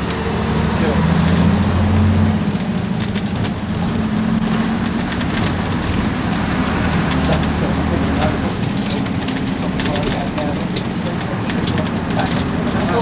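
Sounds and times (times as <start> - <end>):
bus body rattles: 0.0 - 13.0
bus diesel engine running: 0.0 - 13.0.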